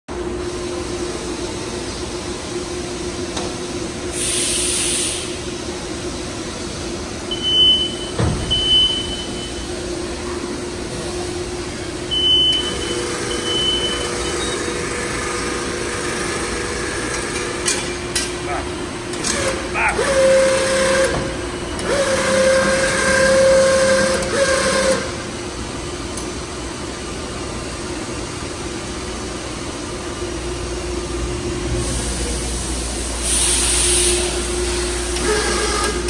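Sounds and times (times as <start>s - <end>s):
packaging machine hum: 10.4s - 26.2s, 30.1s - 36.0s.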